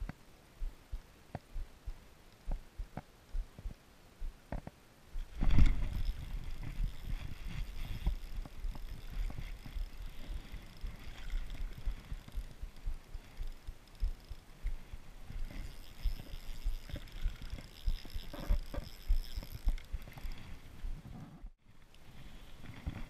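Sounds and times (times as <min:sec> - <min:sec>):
fishing reel being cranked: 0:05.3 - 0:14.5, 0:15.3 - 0:20.6.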